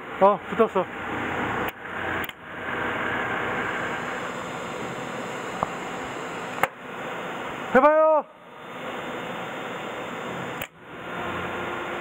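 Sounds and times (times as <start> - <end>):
sharp click: 1.6 - 2.4.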